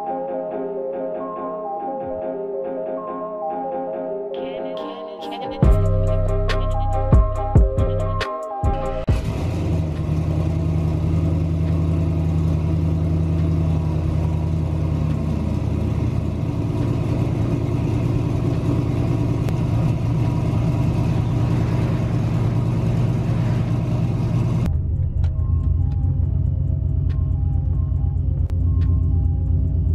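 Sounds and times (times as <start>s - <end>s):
pickup engine idling: 9.1s - 29.9s.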